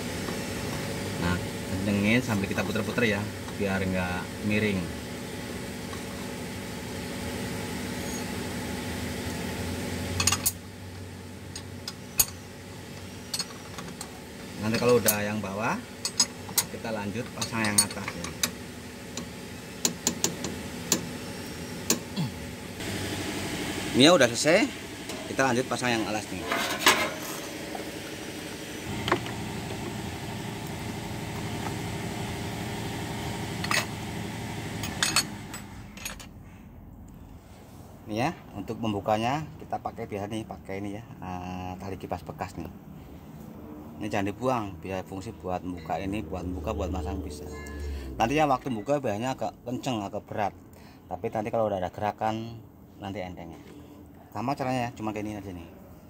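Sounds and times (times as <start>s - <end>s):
low machine hum: 0.0s - 37.5s, 44.6s - 51.0s
hand tools clinking: 16.0s - 18.6s
vehicle engine idling hum: 27.6s - 36.0s.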